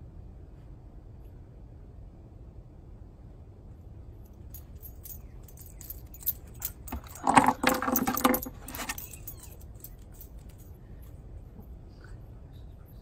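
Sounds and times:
dog collar tags jingling: 4.3 - 11.2.

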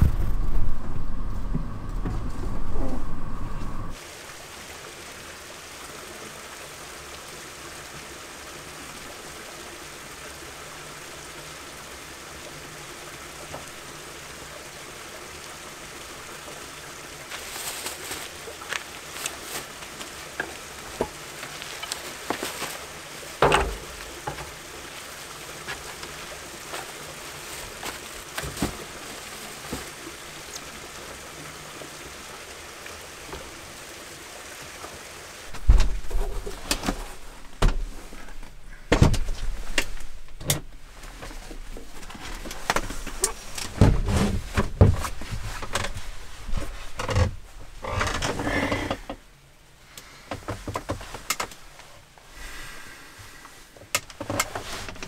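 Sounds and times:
rain hissing: 0.0 - 55.0
plastic bag rustling: 17.3 - 20.1, 20.9 - 23.2.

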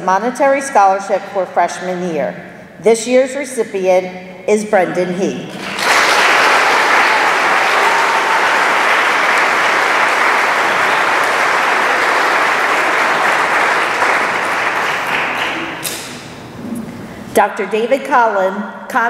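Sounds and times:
audience applauding: 5.6 - 16.0.

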